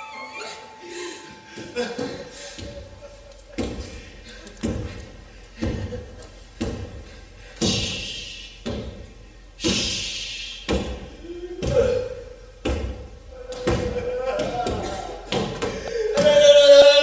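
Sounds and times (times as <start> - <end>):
heavy thuds: 1.6 - 16.4.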